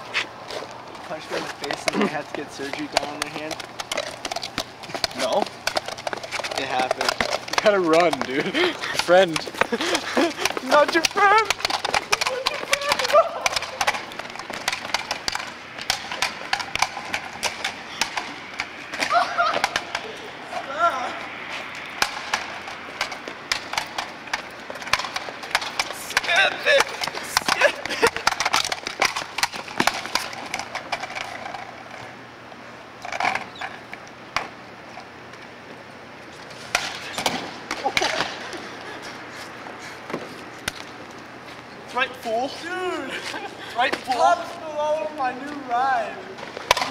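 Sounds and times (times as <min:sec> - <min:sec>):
footsteps on pavement: 0:00.0 - 0:32.2, 0:33.9 - 0:46.9
skateboard wheels rolling on concrete: 0:00.0 - 0:46.9
person speaking: 0:06.4 - 0:14.1, 0:19.1 - 0:21.5, 0:25.8 - 0:28.1, 0:41.8 - 0:46.4.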